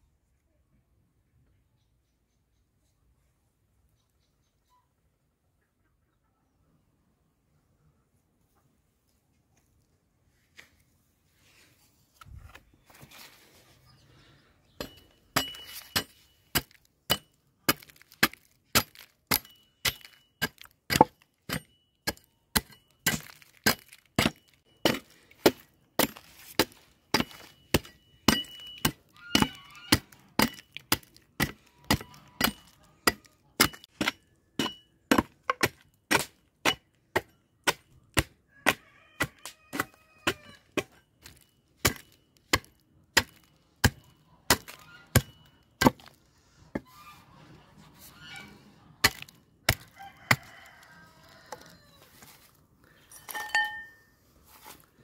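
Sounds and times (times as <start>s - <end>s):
hatchet chopping wood: 14.8s - 46.2s, 49.0s - 50.4s.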